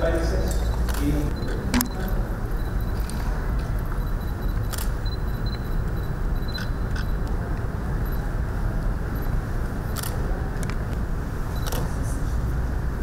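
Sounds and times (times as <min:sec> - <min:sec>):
camera shutters clicking: 0:04.7 - 0:05.0, 0:10.0 - 0:10.8.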